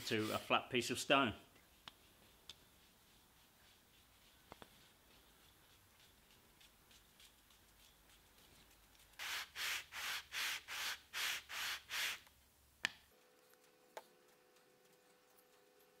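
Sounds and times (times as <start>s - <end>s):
wood scraping on sandpaper: 0.0s - 0.5s, 9.2s - 12.3s.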